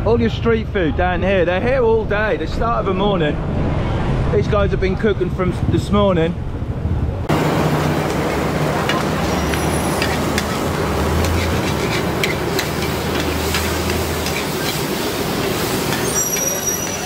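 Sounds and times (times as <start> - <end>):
low rumble: 0.0 - 8.1
food sizzling in a wok: 7.3 - 17.0
metal spatula scraping a wok: 8.0 - 17.0.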